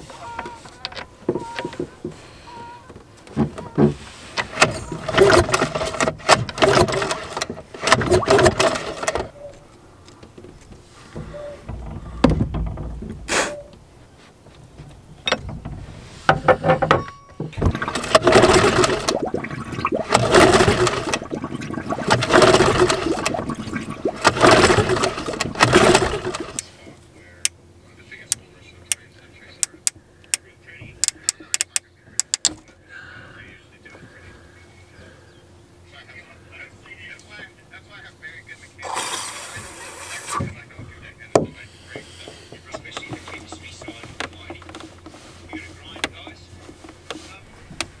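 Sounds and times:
outboard motor pull-start cranking: 0:03.4 - 0:09.5, 0:15.2 - 0:16.9, 0:17.5 - 0:26.7, 0:29.6 - 0:30.0, 0:31.0 - 0:32.6, 0:38.8 - 0:40.6, 0:41.9 - 0:48.0.

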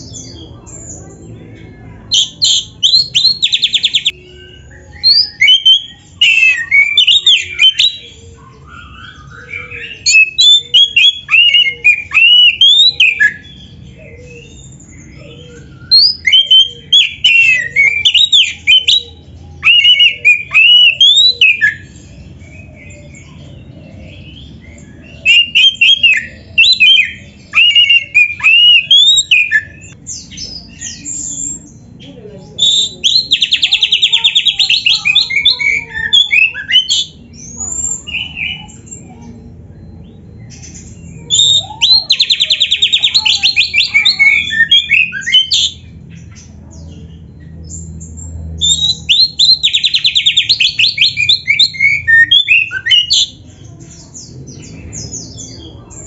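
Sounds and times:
bird singing rapid varied whistles: 0:08.6 - 0:13.4, 0:19.6 - 0:21.9, 0:25.2 - 0:30.0, 0:41.2 - 0:45.8, 0:48.6 - 0:53.3.

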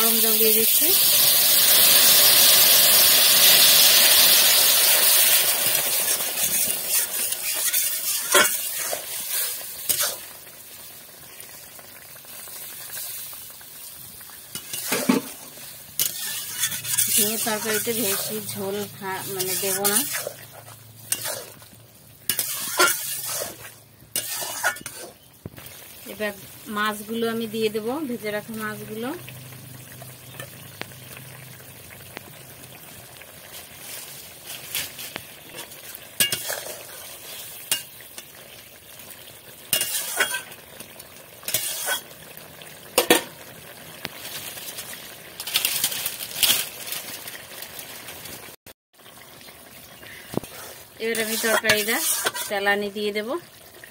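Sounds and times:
gravy sizzling: 0:00.0 - 0:53.9
metal spatula scraping pan: 0:05.9 - 0:10.2, 0:14.6 - 0:21.7, 0:22.3 - 0:25.3, 0:34.5 - 0:37.9, 0:39.7 - 0:40.6, 0:41.5 - 0:42.1, 0:50.4 - 0:52.8.

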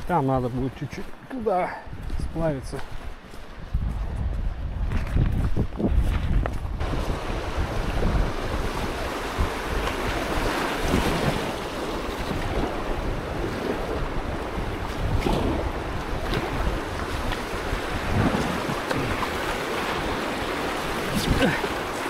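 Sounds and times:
river water rushing and slapping: 0:00.0 - 0:03.7, 0:06.7 - 0:22.0
wind buffeting microphone: 0:01.8 - 0:22.0
paddle splashes: 0:06.9 - 0:22.0.

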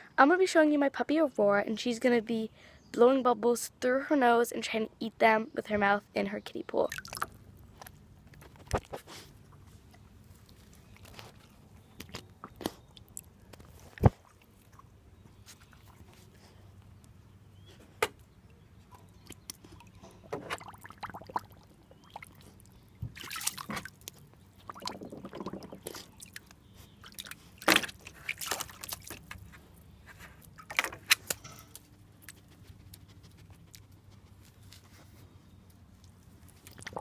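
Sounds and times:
water splashing: 0:06.9 - 0:07.4, 0:19.8 - 0:29.4
puppy blowing bubbles: 0:24.6 - 0:26.5, 0:36.7 - 0:37.0
puppy slurping: 0:24.6 - 0:26.5.

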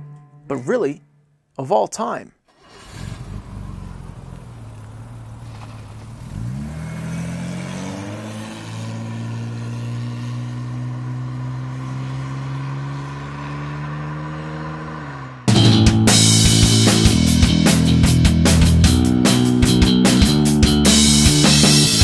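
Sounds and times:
car engine idling and pulling away: 0:02.5 - 0:19.4.

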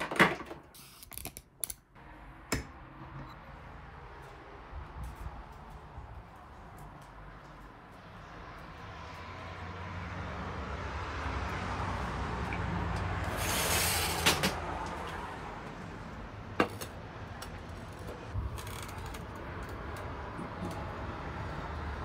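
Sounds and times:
outdoor traffic hum: 0:00.0 - 0:22.0
sliding door opening: 0:13.0 - 0:15.3.

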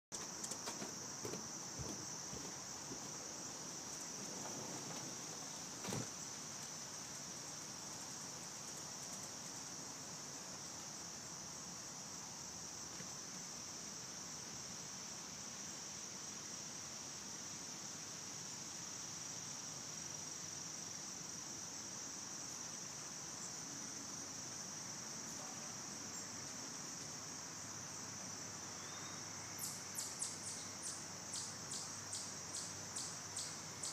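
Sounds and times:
high-pitched insect chorus: 0:00.1 - 0:33.9
soft thump: 0:00.7 - 0:03.1, 0:05.8 - 0:06.1.

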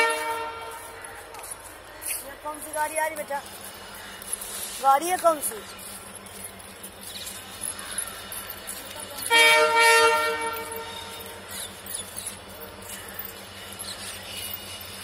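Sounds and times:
train horn blast: 0:00.0 - 0:01.0, 0:09.2 - 0:11.4
station background hum: 0:00.0 - 0:15.0.

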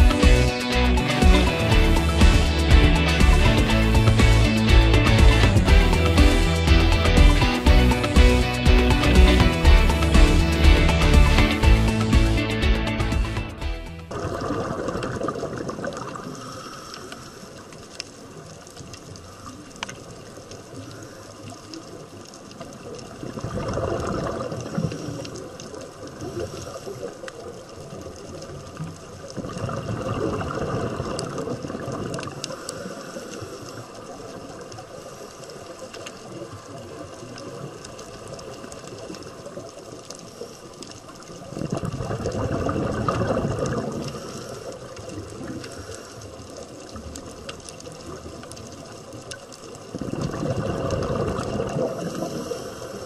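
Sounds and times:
underwater water noise: 0:00.0 - 0:53.0
gurgling rush of bubbles: 0:13.9 - 0:53.0.

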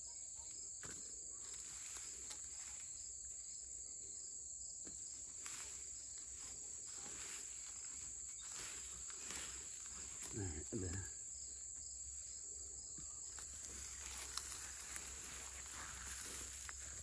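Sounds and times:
high-pitched insect chorus: 0:00.0 - 0:17.0
hands rustling through mulch: 0:05.3 - 0:11.2, 0:13.1 - 0:17.0.

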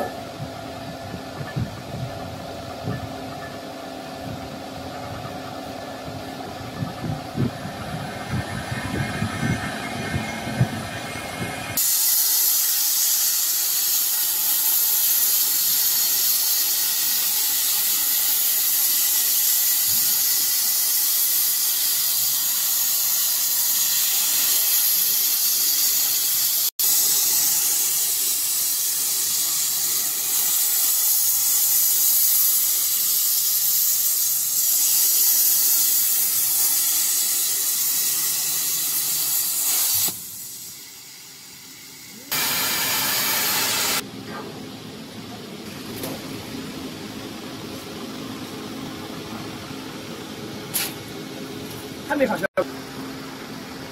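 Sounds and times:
plasma torch hissing: 0:07.0 - 0:44.0.

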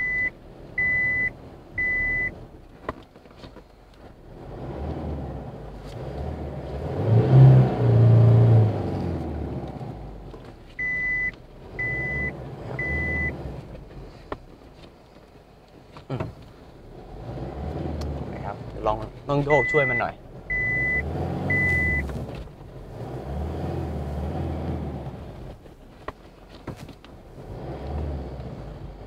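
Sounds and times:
reverse warning beeps: 0:00.0 - 0:02.3, 0:10.8 - 0:13.4, 0:19.5 - 0:22.1
diesel engine revving: 0:00.0 - 0:02.8, 0:04.0 - 0:14.9, 0:16.0 - 0:29.0.

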